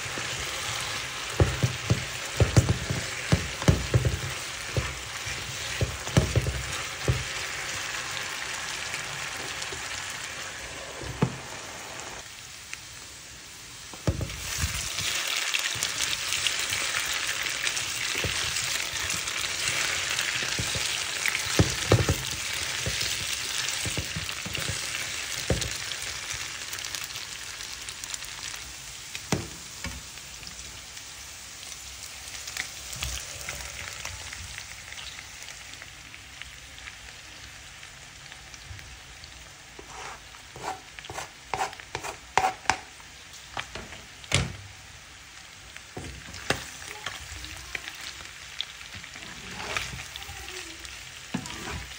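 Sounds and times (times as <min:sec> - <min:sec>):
potatoes sizzling in oil: 0:00.0 - 0:51.9
wooden spatula knocking pan: 0:01.2 - 0:07.5, 0:20.3 - 0:25.8, 0:40.6 - 0:42.9.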